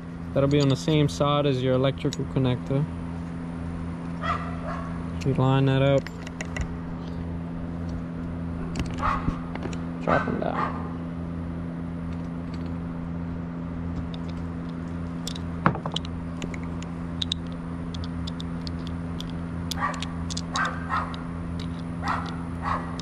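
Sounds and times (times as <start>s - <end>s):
steady low hum: 0.0s - 23.0s
dog barking: 4.2s - 5.0s, 9.0s - 9.4s, 10.1s - 11.0s, 19.8s - 21.2s, 22.0s - 23.0s.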